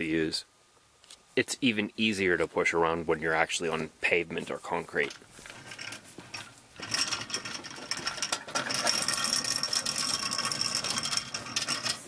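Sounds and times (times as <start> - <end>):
cart rattling over pavement: 4.9 - 12.0.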